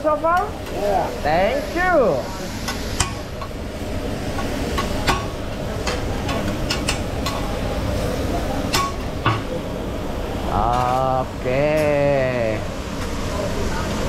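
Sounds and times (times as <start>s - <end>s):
food sizzling on a griddle: 0.6s - 6.7s, 10.4s - 14.0s.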